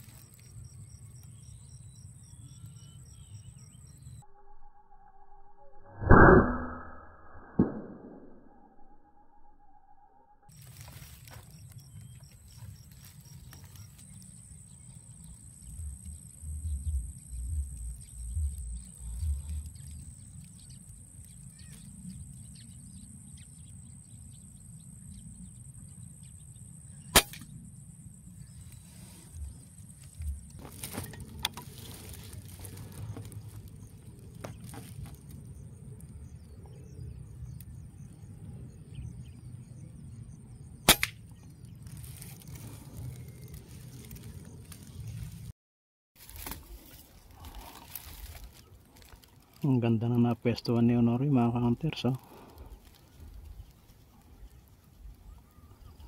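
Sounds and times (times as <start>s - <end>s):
faint high whine: 0.0s - 41.0s
air rifle shots: 27.2s - 27.5s, 40.9s - 41.2s.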